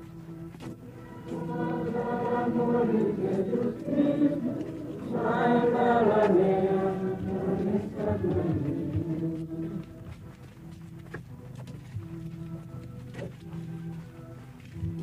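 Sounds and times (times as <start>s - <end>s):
crowd singing slow chant: 0.9s - 10.0s.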